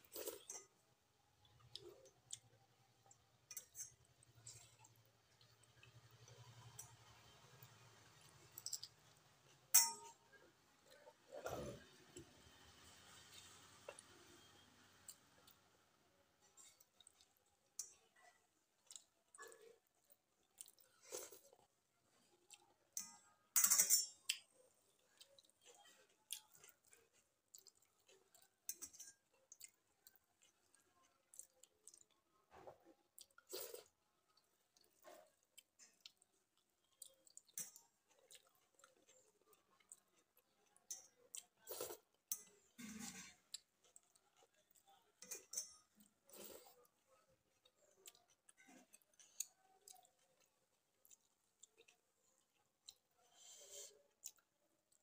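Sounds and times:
chewing and wet mouth smacks: 16.7 - 21.6, 24.3 - 42.6, 46.0 - 55.0.

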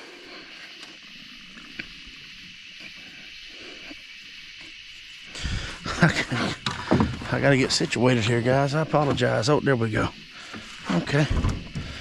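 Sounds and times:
night insects chorus: 0.0 - 12.0.

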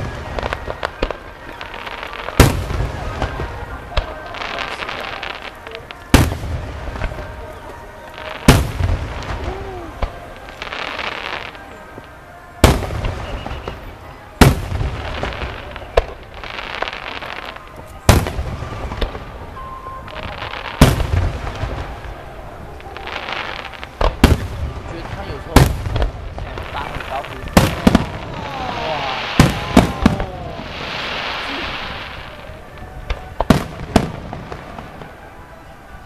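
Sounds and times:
firework shells booming: 23.4 - 32.4.

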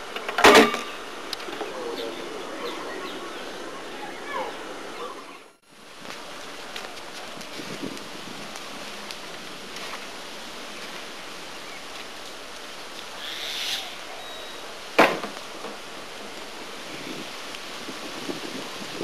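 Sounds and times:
steady outdoor hiss: 0.0 - 19.0
briefcase thud on asphalt: 15.0 - 15.8.

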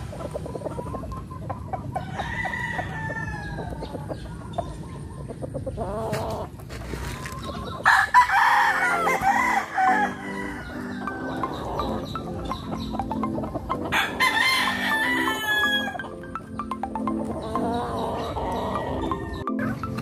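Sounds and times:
chickens clucking: 0.0 - 20.0
rooster crowing: 2.0 - 3.9, 7.8 - 12.0, 13.9 - 16.1, 17.6 - 19.7.

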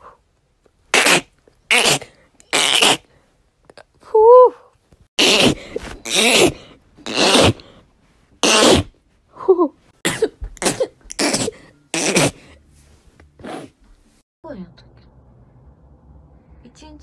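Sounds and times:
woman sneezing: 5.2 - 7.6, 8.4 - 12.4.

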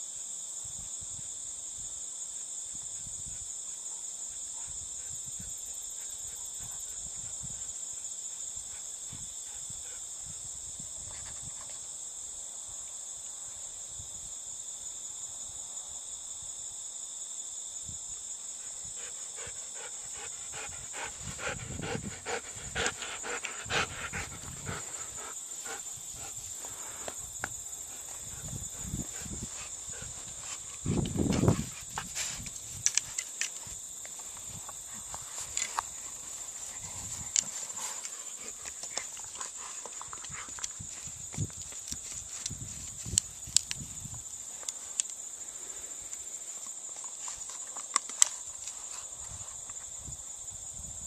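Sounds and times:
sharp clicks and cracks of wood: 32.4 - 34.3, 37.3 - 43.9, 46.1 - 48.8.

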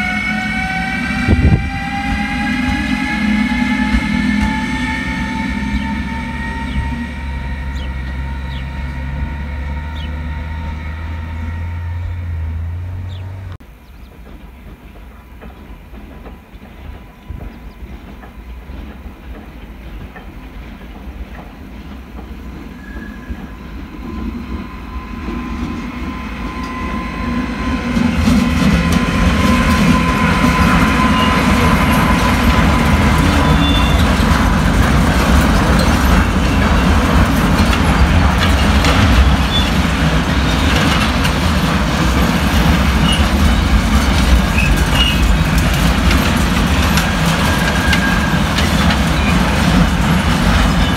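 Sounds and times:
electric locomotive rumble and whine: 0.0 - 50.9
freight train wheels clattering: 13.6 - 50.9
thin wheel squeal: 44.6 - 45.4.

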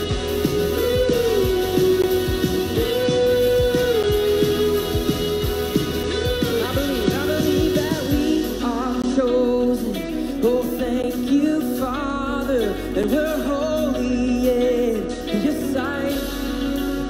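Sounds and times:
acoustic and electric guitars: 0.0 - 17.0
held bass notes: 0.0 - 17.0
man singing: 0.0 - 17.0.

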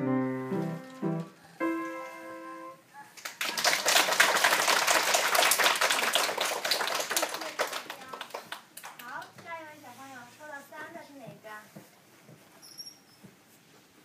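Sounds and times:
piano chord ringing: 0.0 - 2.8
people applauding: 3.1 - 9.2.

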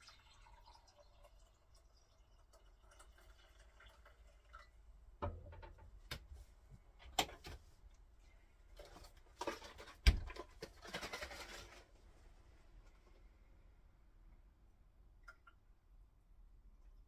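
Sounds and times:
rustling: 7.5 - 13.3.

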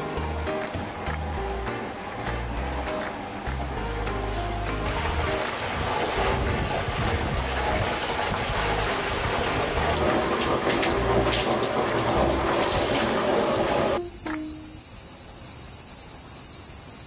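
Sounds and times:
water gushing into stone basin: 3.6 - 14.0.

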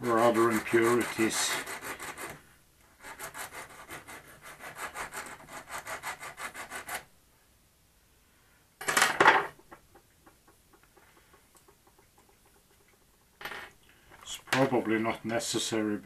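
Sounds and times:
file scraping metal rod: 0.0 - 2.4, 3.0 - 7.0.

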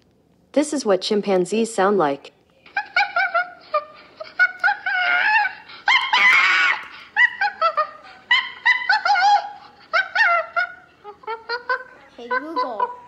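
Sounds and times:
chimpanzee calls through speaker: 2.7 - 13.0.

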